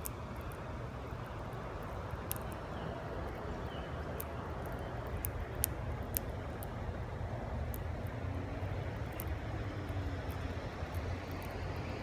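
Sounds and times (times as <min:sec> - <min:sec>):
sharp high ticks: 0:01.8 - 0:03.4, 0:04.1 - 0:06.8, 0:07.6 - 0:12.0.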